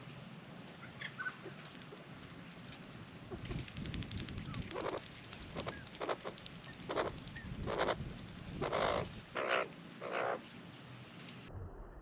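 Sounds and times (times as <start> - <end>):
magpie croaking calls: 4.7 - 8.0, 8.6 - 10.4.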